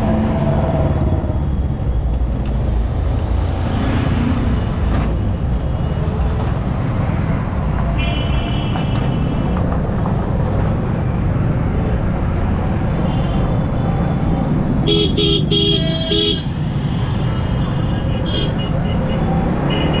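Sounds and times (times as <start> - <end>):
vehicle horns honking: 14.9 - 16.6.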